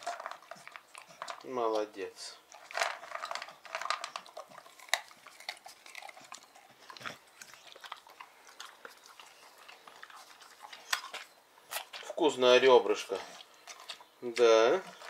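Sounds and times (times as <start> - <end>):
dog crunching and chewing: 0.0 - 15.0.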